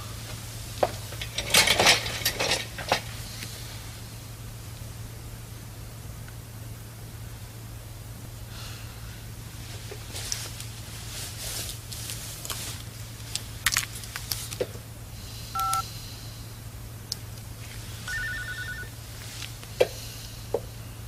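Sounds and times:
keypad beep: 15.6s - 15.8s, 18.1s - 18.9s
pulsing phone ringing tone: 15.6s - 15.8s, 18.0s - 19.0s.

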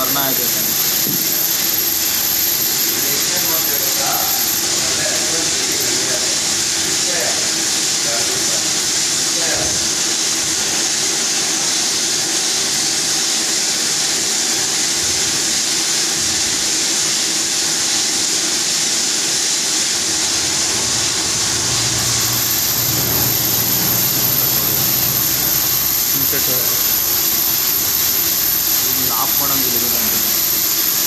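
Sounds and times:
thin high whine: 0.0s - 11.9s, 19.4s - 31.0s
coolant spray hissing: 0.0s - 31.0s
machine running noise: 0.0s - 31.0s
low hum: 20.6s - 29.0s.

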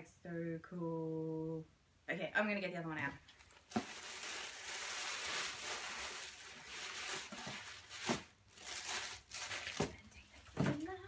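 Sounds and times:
tissue paper rustling: 3.4s - 10.6s.

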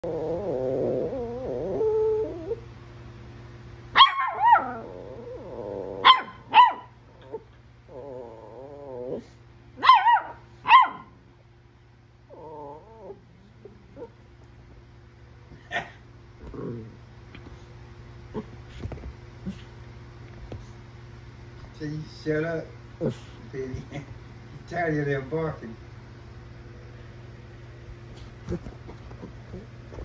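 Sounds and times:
small dogs growling: 0.0s - 2.7s, 4.2s - 9.4s, 12.2s - 14.2s, 15.5s - 17.1s, 18.3s - 18.8s, 28.2s - 30.0s
small dogs yapping: 3.9s - 11.2s, 15.5s - 16.0s.

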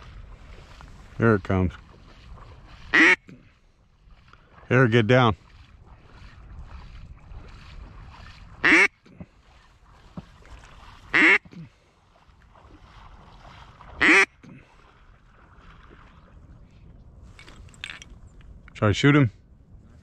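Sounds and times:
duck quacks: 2.9s - 3.3s, 8.6s - 9.0s, 11.1s - 11.6s, 14.0s - 14.6s.

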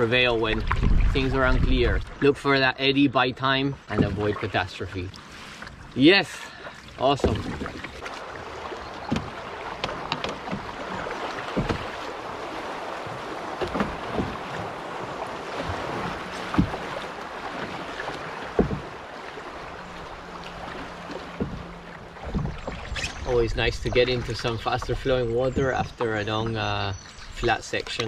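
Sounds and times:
river water rushing and splashing: 3.8s - 26.2s
paddle knocks: 3.9s - 4.7s, 7.1s - 28.0s.

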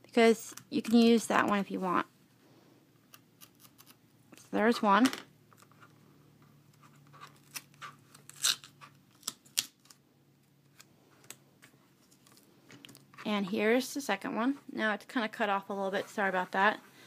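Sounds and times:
duct tape peeling crackles: 7.1s - 11.4s.

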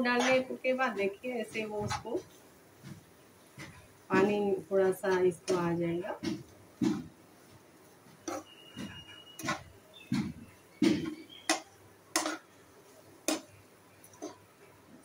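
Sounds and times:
spatula knocking on metal pan: 8.3s - 12.5s, 13.3s - 13.5s.

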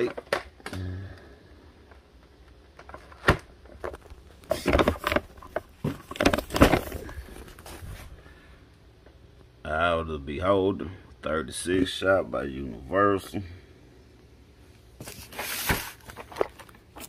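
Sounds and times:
cardboard scraping and rustling: 3.0s - 8.2s, 15.0s - 17.0s.

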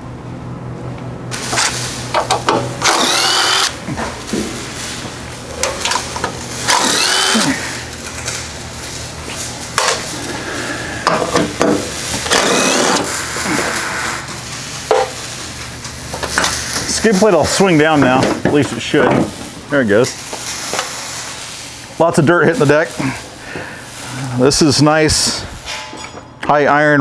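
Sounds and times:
steady low hum: 0.0s - 27.0s
cordless driver motor whine: 2.8s - 3.8s, 6.7s - 7.6s, 12.3s - 13.1s.

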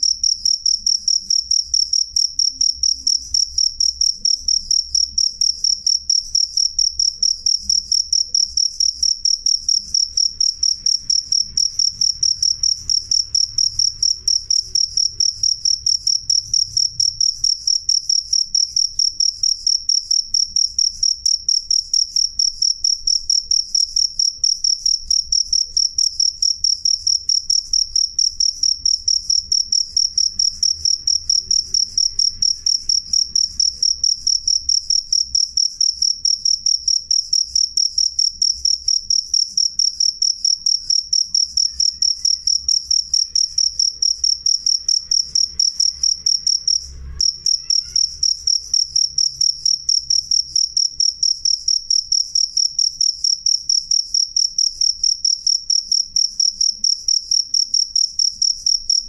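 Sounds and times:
cricket chirping: 0.0s - 59.0s.

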